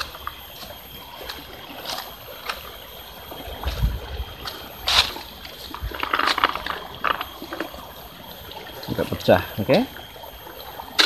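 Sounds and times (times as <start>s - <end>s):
footsteps on dry leaves: 0.0s - 8.0s
stream trickling: 0.0s - 11.0s.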